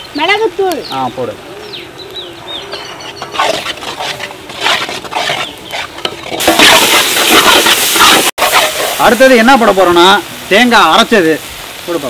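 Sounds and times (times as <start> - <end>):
frying sizzle: 0.0 - 2.2, 3.3 - 12.0
spatula scraping in pan: 3.0 - 9.6.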